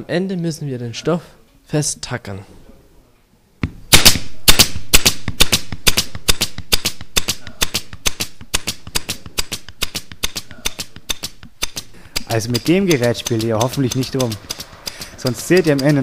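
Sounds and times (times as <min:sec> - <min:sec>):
pneumatic stapler firing: 0:03.9 - 0:16.0.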